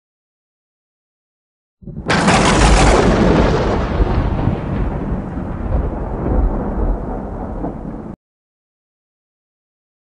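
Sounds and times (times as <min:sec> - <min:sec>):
deep rumbling boom: 0:01.8 - 0:08.2.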